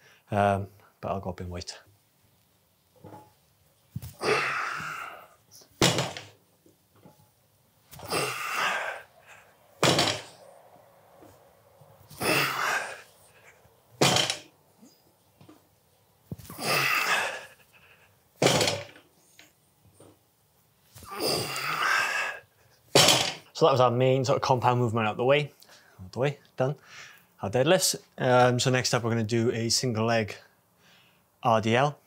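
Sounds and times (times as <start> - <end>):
barbell plates thudding on rubber floor: 5.8 - 6.3, 9.8 - 10.4, 14.0 - 14.5, 18.4 - 19.0, 23.0 - 23.4.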